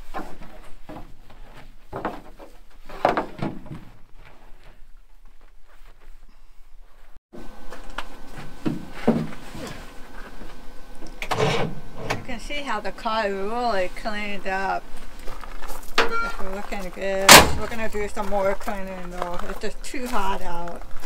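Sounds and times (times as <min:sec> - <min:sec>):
clunks and knocks: 0:00.0 - 0:04.0, 0:08.5 - 0:09.8.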